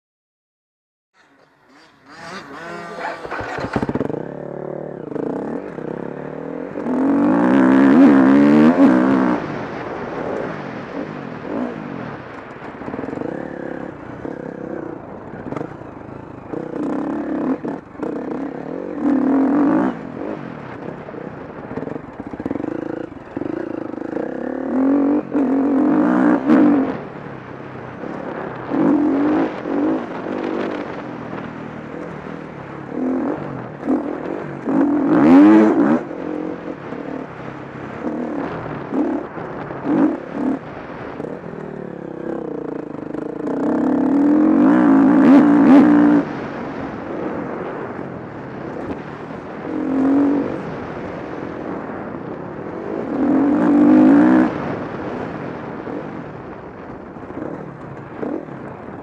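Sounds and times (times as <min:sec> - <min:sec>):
motocross bike engine revving: 0:01.2 - 0:10.4, 0:16.5 - 0:20.4, 0:21.8 - 0:27.0, 0:31.9 - 0:37.2, 0:41.2 - 0:46.6.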